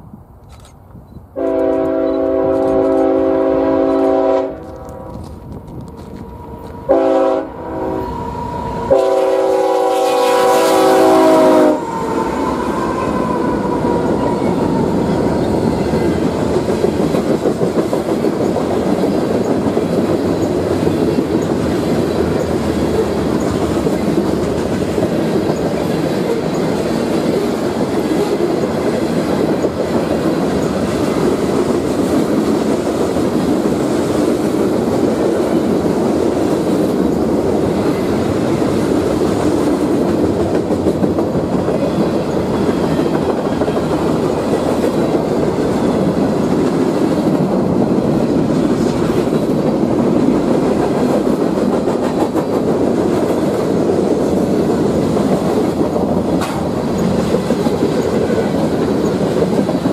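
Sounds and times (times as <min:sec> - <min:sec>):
locomotive air horn blasts: 0:01.4 - 0:05.2, 0:06.8 - 0:08.2, 0:08.9 - 0:12.4
freight cars rolling clickety-clack: 0:12.9 - 0:59.9.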